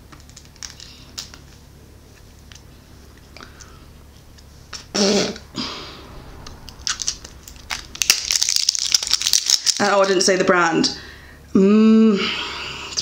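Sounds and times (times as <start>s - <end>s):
breath: 3.4s - 4.0s, 11.0s - 11.5s
cosmetics package clicking: 6.9s - 9.9s.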